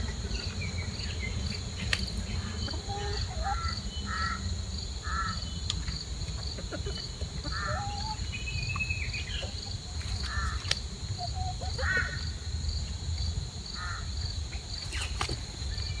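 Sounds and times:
bird calling: 0:00.0 - 0:05.6, 0:06.3 - 0:12.4
insects chirring: 0:00.0 - 0:16.0.

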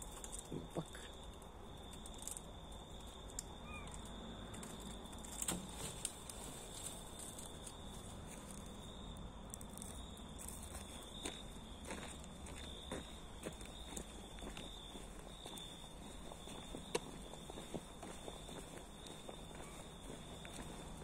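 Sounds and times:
footsteps: 0:09.6 - 0:21.0.

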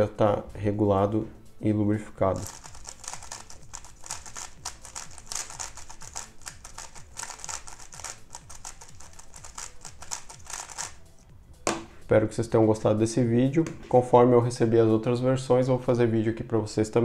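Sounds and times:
puzzle cube plastic clicks: 0:02.4 - 0:11.0.

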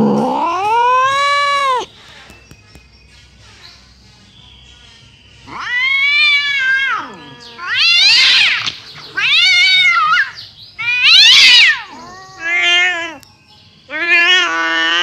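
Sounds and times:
cat yowling: 0:00.0 - 0:01.9, 0:05.5 - 0:13.2, 0:13.9 - 0:15.0.

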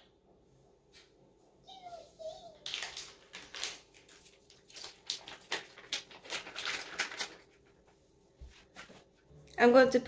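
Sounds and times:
cat food packet rustling: 0:02.5 - 0:07.8.

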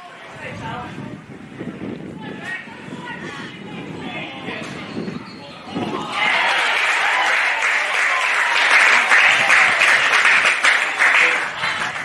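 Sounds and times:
people shouting: 0:05.6 - 0:09.8
spectators clapping: 0:06.0 - 0:12.0.

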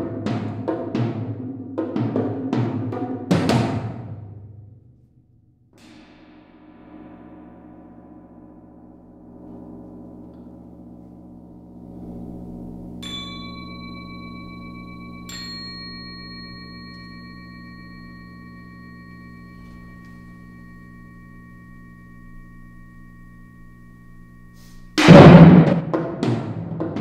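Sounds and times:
hard drum strokes: 0:05.8 - 0:13.0, 0:22.5 - 0:27.0
large gong ringing: 0:05.8 - 0:27.0
small metal bell ringing: 0:13.0 - 0:25.0.

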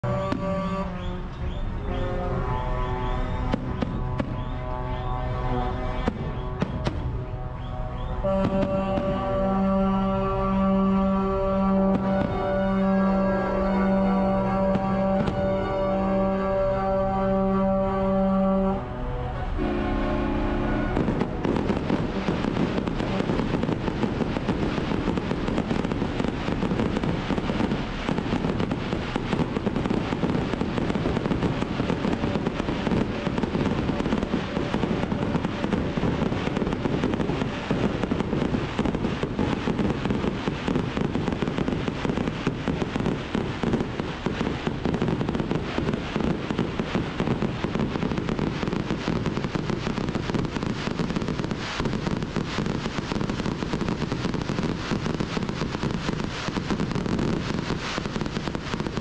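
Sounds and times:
fireworks crackling and popping: 0:00.0 - 0:18.8, 0:19.5 - 0:59.0
music: 0:00.1 - 0:21.2.

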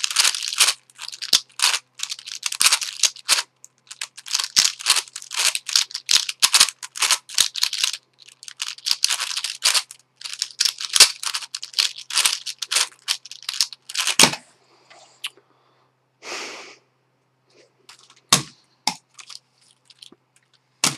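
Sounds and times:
puzzle layers clicking: 0:00.0 - 0:14.3.

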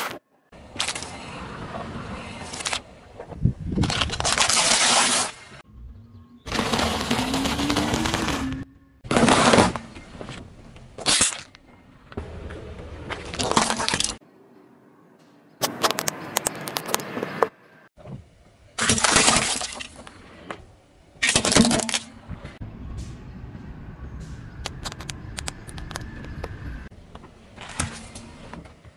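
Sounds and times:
tyre crushing brittle objects: 0:06.5 - 0:10.4.

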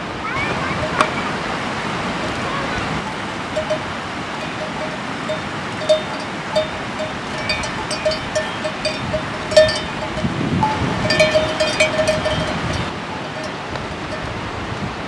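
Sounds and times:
river rushing: 0:00.0 - 0:15.0
livestock bell clinking: 0:03.0 - 0:14.4.

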